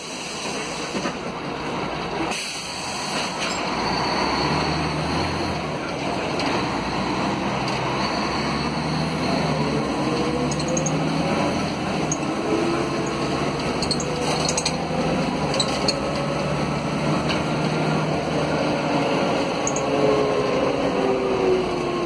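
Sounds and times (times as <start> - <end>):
bus diesel engine drone: 0.0 - 22.0
light clinking rattles: 12.0 - 16.2.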